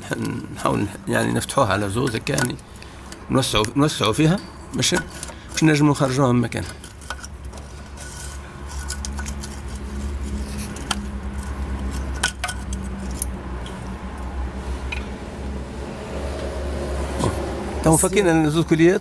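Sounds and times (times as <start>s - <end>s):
metal tool clinking on hose clamp: 1.9s - 7.4s, 10.8s - 13.4s.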